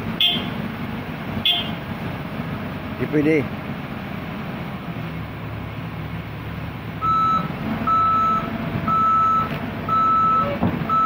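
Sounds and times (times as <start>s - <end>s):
excavator engine running: 0.0s - 11.0s
excavator travel alarm beeps: 0.2s - 0.5s, 7.0s - 11.0s.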